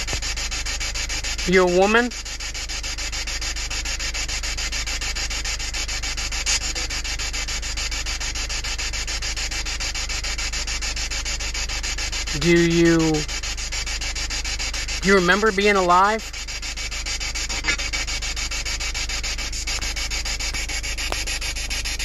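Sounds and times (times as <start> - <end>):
pulsing rasping hiss: 0.0 - 22.0
constant low rumble: 11.9 - 22.0.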